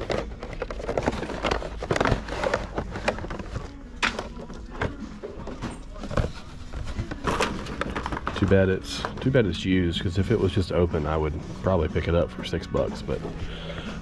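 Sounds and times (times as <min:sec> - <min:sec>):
cardboard box and bag rustling: 0:00.0 - 0:03.8, 0:04.5 - 0:09.3.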